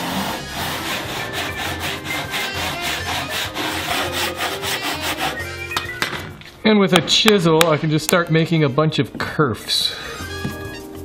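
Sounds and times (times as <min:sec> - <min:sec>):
hand saw cutting wood: 0:00.0 - 0:05.5.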